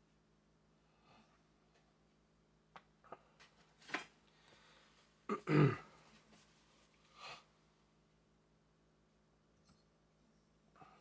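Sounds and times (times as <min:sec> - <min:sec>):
man clearing throat: 0:05.3 - 0:06.0.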